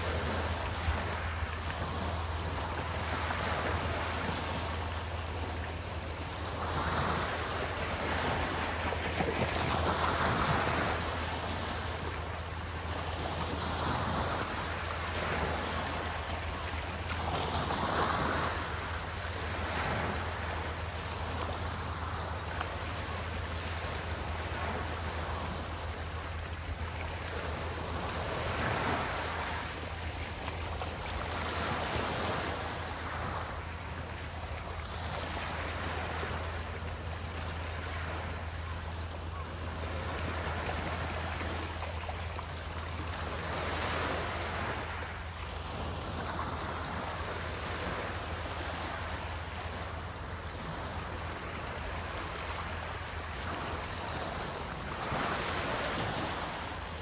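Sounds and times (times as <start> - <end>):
small waves washing ashore: 0.0 - 57.0.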